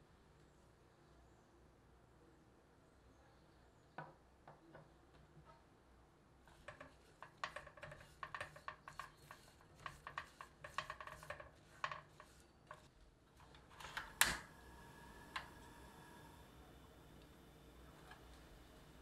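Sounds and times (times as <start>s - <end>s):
spatula scraping saucepan: 6.5s - 13.0s
gas burner hissing: 13.8s - 19.0s
gas stove igniter clicks: 14.0s - 14.5s.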